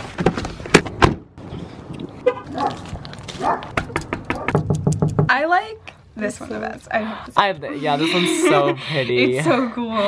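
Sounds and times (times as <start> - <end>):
sharp knocks and clicks: 3.6 - 5.3.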